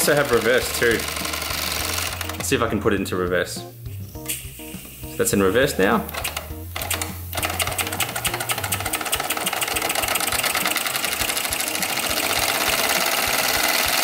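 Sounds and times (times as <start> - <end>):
model steam engine chuffing: 0.0 - 2.1.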